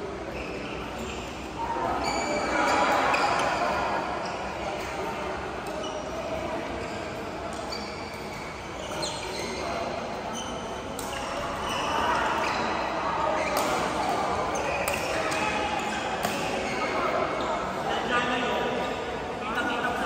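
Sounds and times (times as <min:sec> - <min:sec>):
murmur of voices: 0:00.0 - 0:20.0
shoes squeaking on court: 0:00.2 - 0:17.8
rackets hitting shuttlecock: 0:13.4 - 0:14.2.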